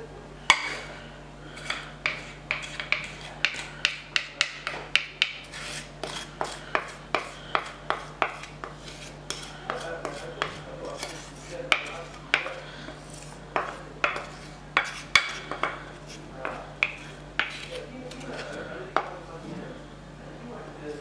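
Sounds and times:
spatula scraping a bowl: 0:01.5 - 0:19.8
spatula knocking against bowl: 0:01.6 - 0:13.0, 0:13.6 - 0:15.8, 0:16.4 - 0:19.2.

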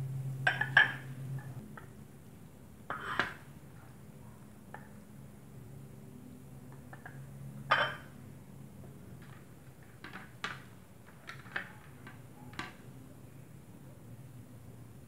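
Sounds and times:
steady low hum: 0:00.0 - 0:09.8.

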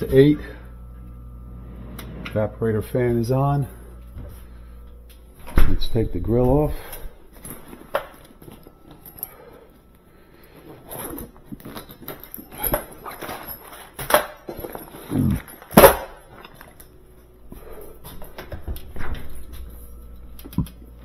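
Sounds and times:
handling noise: 0:04.0 - 0:20.8.

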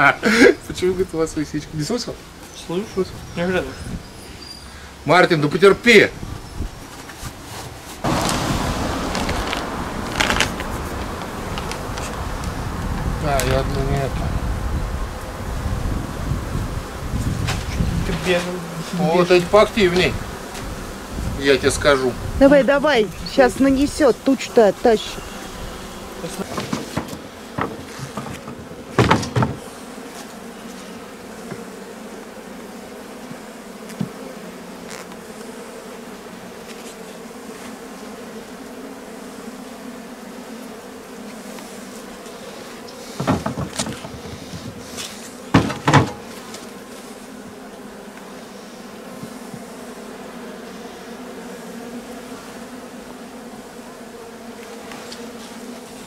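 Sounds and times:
bees buzzing: 0:00.0 - 0:56.0
wooden knocks on hive: 0:17.2 - 0:18.6, 0:26.2 - 0:31.7, 0:33.2 - 0:34.3, 0:43.1 - 0:46.8, 0:49.1 - 0:49.8.

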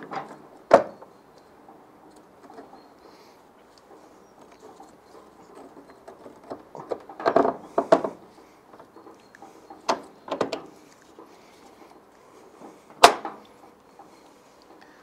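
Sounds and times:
metal knocking and clicking: 0:04.4 - 0:11.3.

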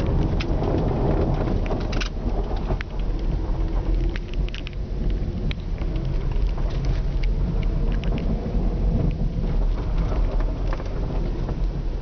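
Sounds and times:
engine and tyres rumbling: 0:00.0 - 0:12.0
sharp ticks and crackles: 0:00.0 - 0:12.0.

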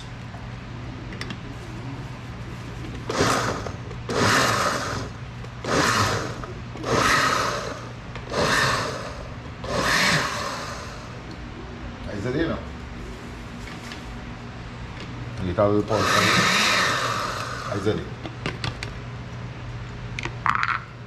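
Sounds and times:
blender pulsing: 0:03.1 - 0:11.2, 0:15.8 - 0:18.0.

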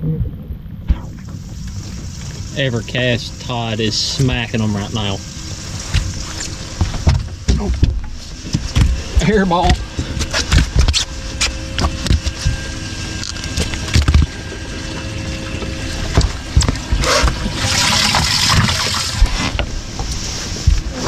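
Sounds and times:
water rushing and splashing: 0:00.3 - 0:21.0
fish thumping on boat deck: 0:05.8 - 0:12.7.

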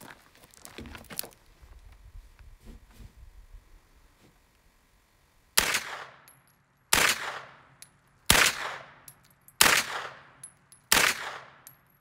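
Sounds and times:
gunshots with echo: 0:09.6 - 0:11.6.

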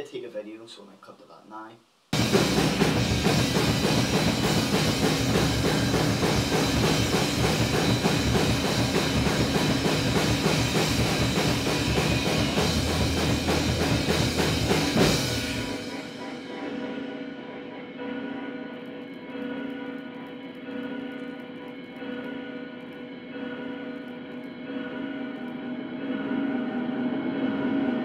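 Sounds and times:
bass guitar: 0:02.2 - 0:15.9
heavy drums: 0:02.2 - 0:17.8.

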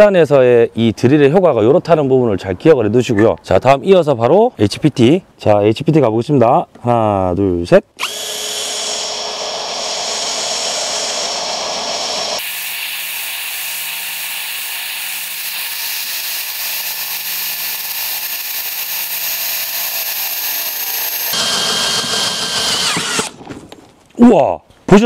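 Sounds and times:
drill boring into steel: 0:08.0 - 0:23.4.

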